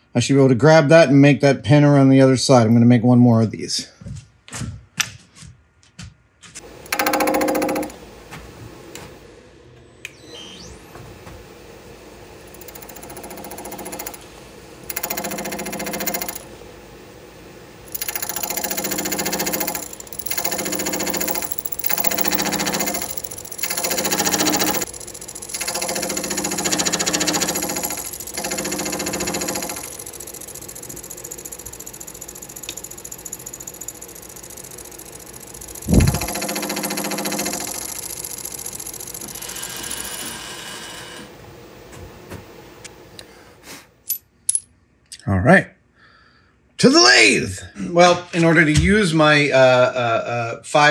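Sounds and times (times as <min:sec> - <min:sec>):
milling spindle high whine: 0:06.6 - 0:41.5
saw cutting metal: 0:17.9 - 0:38.0.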